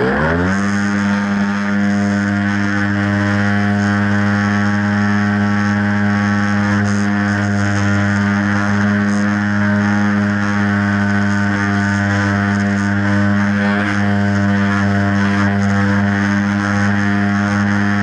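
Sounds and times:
model airplane motor and propeller: 0.0s - 18.0s.

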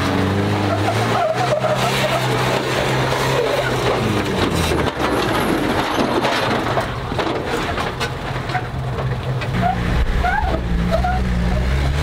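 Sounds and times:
truck engine running under load: 0.0s - 12.0s
tyres crunching and scraping on rock: 1.1s - 11.1s.

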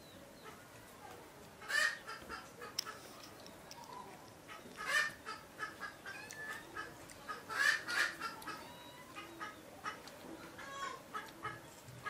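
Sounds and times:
chickens clucking: 0.4s - 12.0s
loud hen calls: 4.5s - 11.6s.

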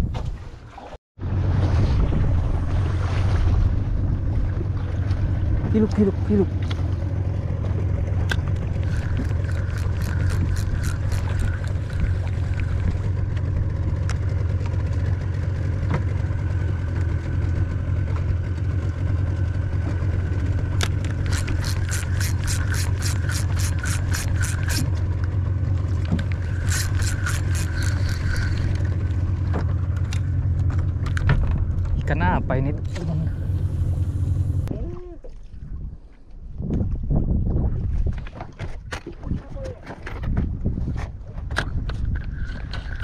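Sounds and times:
boat engine droning: 1.2s - 35.4s
fishing reel ticking: 8.3s - 13.1s, 20.8s - 25.0s, 26.1s - 29.2s.

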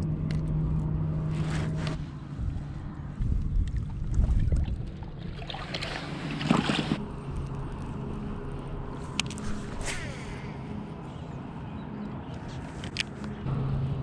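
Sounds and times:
wind on microphone: 0.6s - 5.4s
fish splashing into water: 3.8s - 7.0s.

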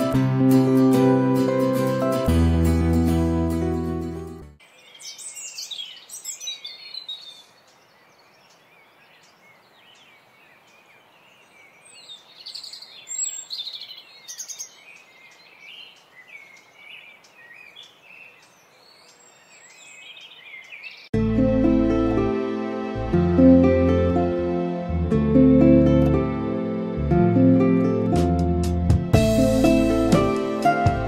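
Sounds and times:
small birds singing and chirping: 4.6s - 21.2s.

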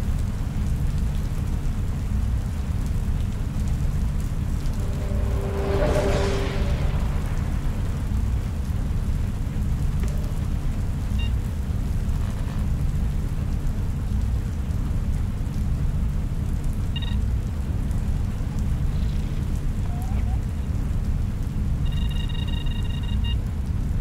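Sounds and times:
low rumbling drone: 2.0s - 11.2s.

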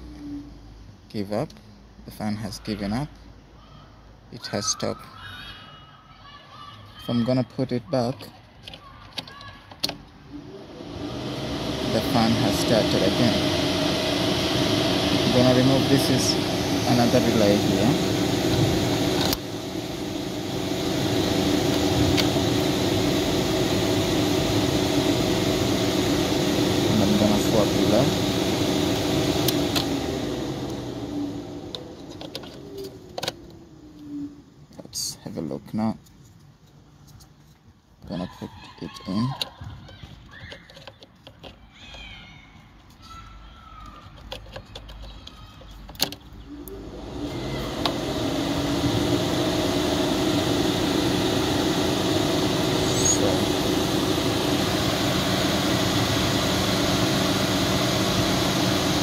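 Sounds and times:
radiator cooling fan humming: 10.2s - 35.1s, 41.6s - 59.0s
small plastic clicks: 39.0s - 42.1s, 43.8s - 46.4s.

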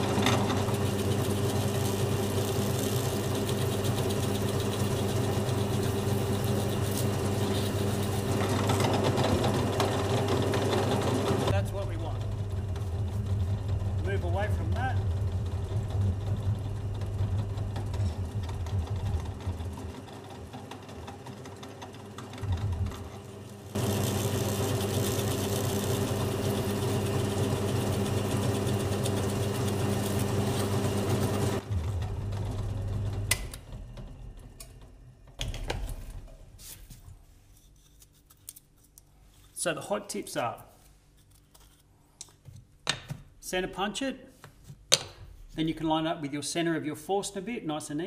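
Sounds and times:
drill press motor running: 0.0s - 35.3s.

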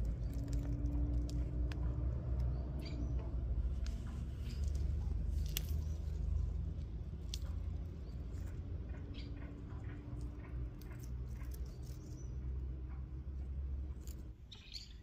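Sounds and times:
faint bird chirps: 14.4s - 15.0s.

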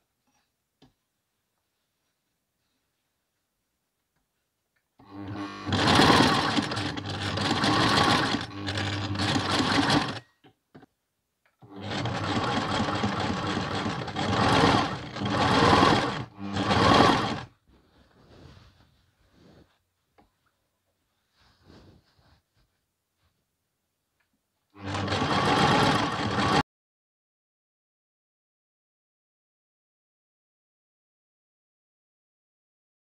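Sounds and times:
sewing machine stitching: 5.0s - 10.4s, 11.6s - 17.5s, 24.8s - 26.6s.

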